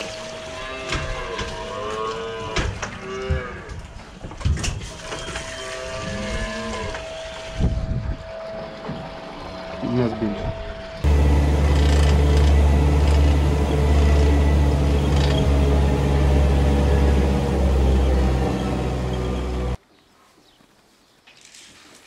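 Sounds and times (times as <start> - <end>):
small engine droning: 6.9 - 19.8.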